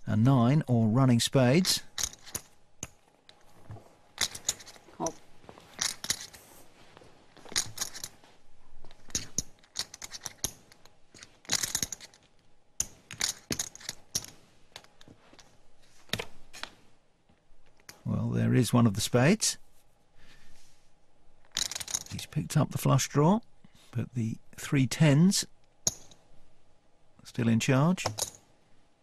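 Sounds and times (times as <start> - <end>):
poker chips clicking together: 4.2 - 5.2, 5.8 - 6.4, 7.5 - 8.1, 9.0 - 10.6, 11.2 - 14.9, 21.5 - 22.1.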